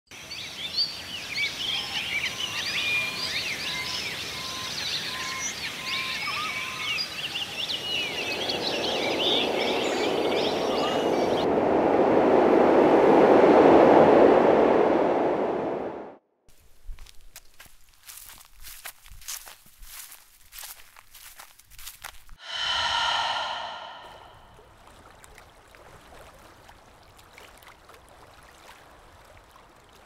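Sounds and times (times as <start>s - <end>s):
rushing noise: 22.4s - 24.6s.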